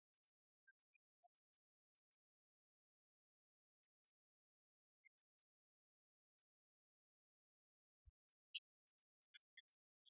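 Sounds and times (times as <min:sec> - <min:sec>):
faint high-pitched clicks: 0:05.0 - 0:05.6.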